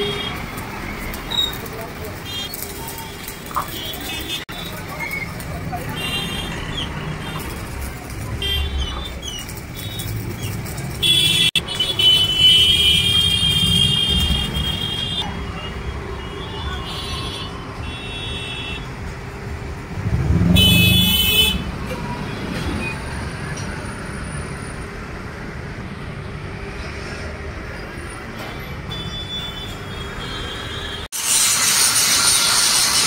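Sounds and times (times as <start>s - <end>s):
horn blast: 20.1s - 21.7s
angle grinder grinding metal: 31.2s - 33.0s.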